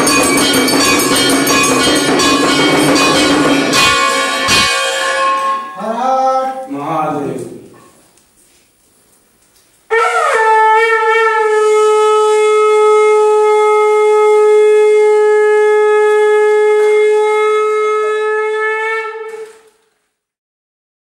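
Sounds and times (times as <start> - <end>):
conch shell blown: 0.0 - 5.8, 9.9 - 19.8.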